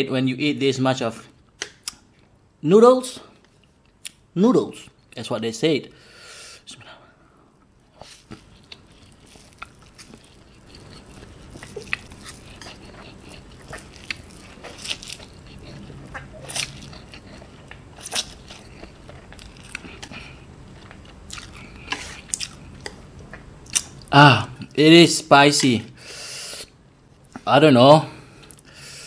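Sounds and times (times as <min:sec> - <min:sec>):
person slurping and chewing noodles: 0:08.0 - 0:23.9.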